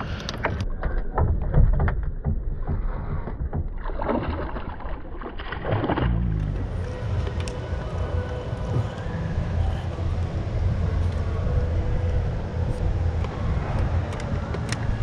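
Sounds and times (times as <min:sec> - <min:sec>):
faint steady whine: 0:06.4 - 0:15.0.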